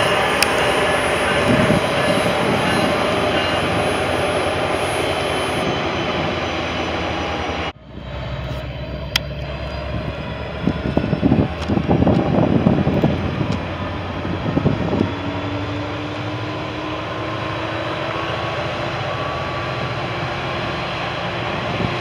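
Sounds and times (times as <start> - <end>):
wind gusts on microphone: 0.0 - 6.8, 9.5 - 22.0
low rumble: 0.0 - 16.5
train wheels roaring on rail: 0.0 - 22.0.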